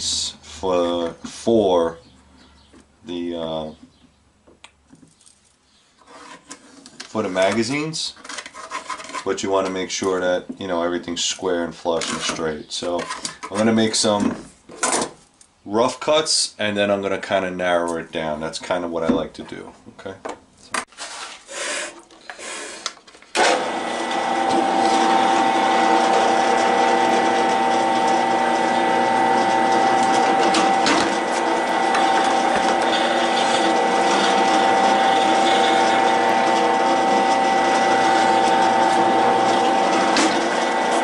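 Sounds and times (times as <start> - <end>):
drill press humming: 23.4 - 41.0.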